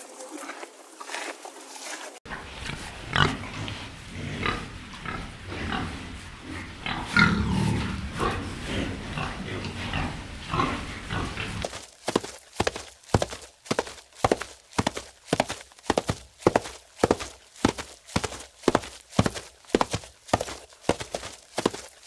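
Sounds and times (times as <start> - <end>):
pig grunting: 2.4 - 11.8.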